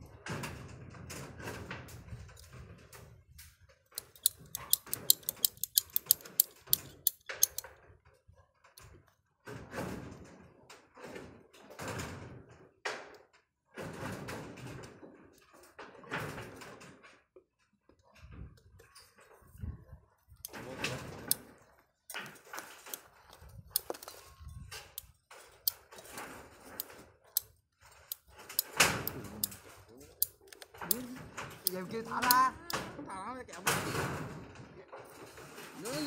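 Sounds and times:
fast sharp clicks: 0:04.0 - 0:07.7.

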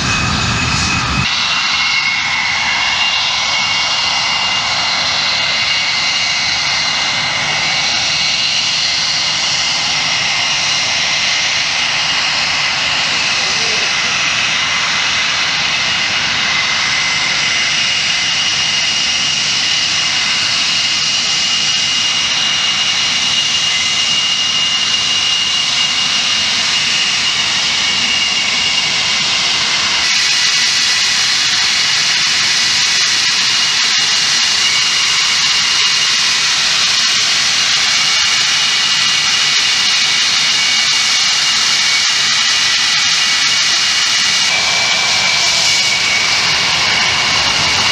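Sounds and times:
jet engines whistling and rushing: 0:00.0 - 0:47.9.

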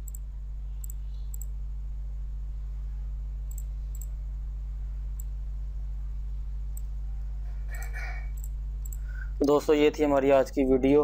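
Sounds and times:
low hum: 0:00.0 - 0:11.0
computer mouse clicks: 0:03.5 - 0:04.1.

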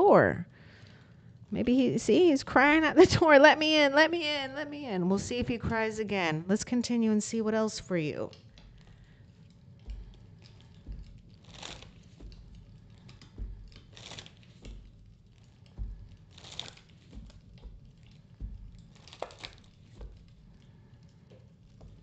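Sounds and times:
cards being shuffled: 0:08.3 - 0:22.0.

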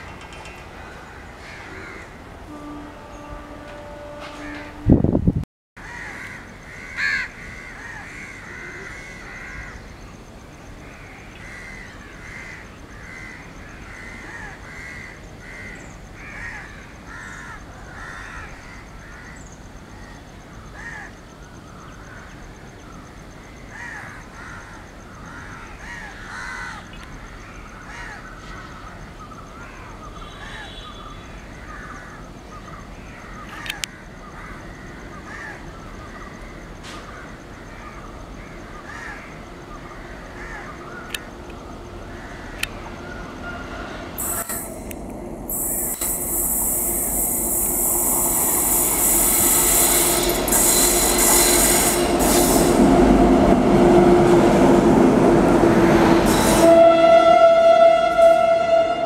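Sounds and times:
crows cawing: 0:01.4 - 0:02.2, 0:05.8 - 0:09.8, 0:11.0 - 0:19.4, 0:20.8 - 0:21.1, 0:23.7 - 0:26.9, 0:27.9 - 0:28.3, 0:33.6 - 0:36.3, 0:38.8 - 0:41.2.

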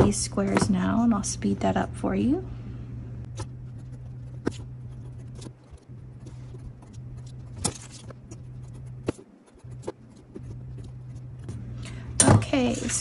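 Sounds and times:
steady low hum: 0:00.0 - 0:13.0
scissors snipping paper: 0:03.4 - 0:11.0.

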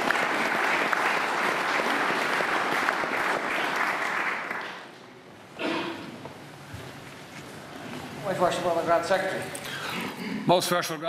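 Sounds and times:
audience applause: 0:00.0 - 0:05.0.

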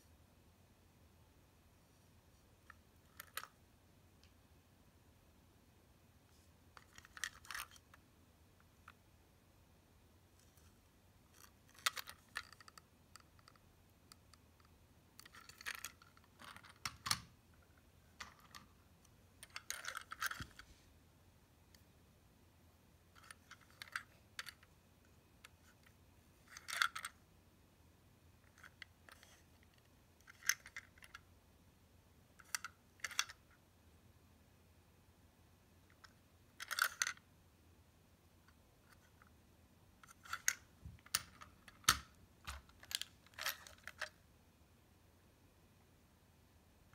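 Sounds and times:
plastic toy clicking and rubbing: 0:02.6 - 0:03.6, 0:06.8 - 0:08.0, 0:10.4 - 0:17.3, 0:18.1 - 0:20.7, 0:23.1 - 0:24.7, 0:25.4 - 0:27.2, 0:28.4 - 0:31.3, 0:32.4 - 0:33.6, 0:35.9 - 0:37.2, 0:40.0 - 0:44.2.

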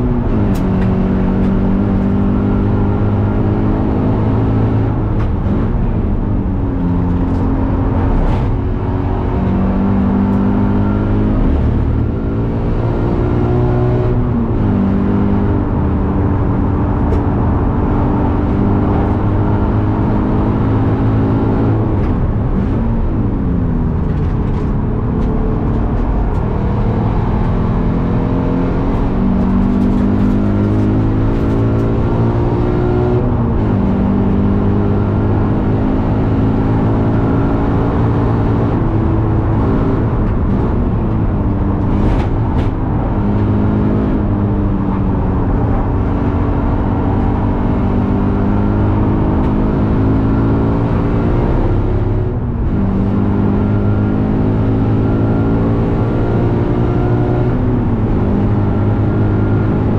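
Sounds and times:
car engine revving hard: 0:00.0 - 0:23.2, 0:25.2 - 0:59.9.

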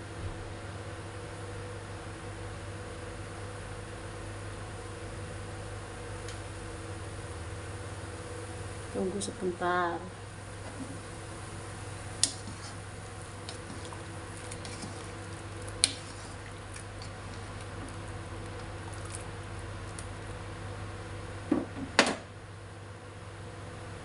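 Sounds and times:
broth bubbling in a pan: 0:10.2 - 0:21.5.

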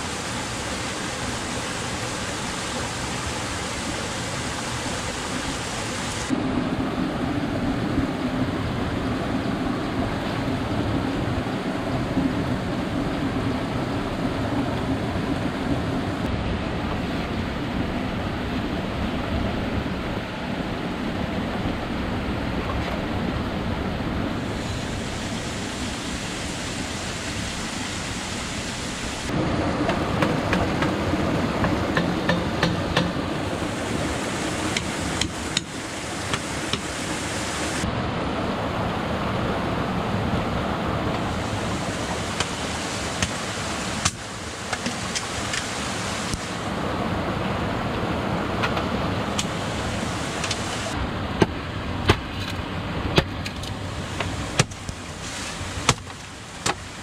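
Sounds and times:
water rushing in rocky stream: 0:00.0 - 0:16.3, 0:16.9 - 0:57.0
taps and knocks on bamboo: 0:31.6 - 0:33.2, 0:55.9 - 0:56.8.

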